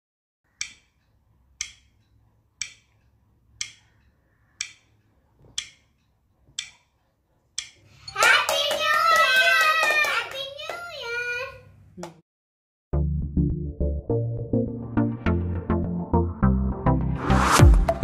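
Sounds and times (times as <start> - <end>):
bright countdown ticks: 0.6 - 3.0, 3.6 - 5.0, 5.6 - 6.9, 7.6 - 8.2
hand claps: 8.1 - 10.9, 12.0 - 12.2
children shouting and cheering: 8.1 - 11.6.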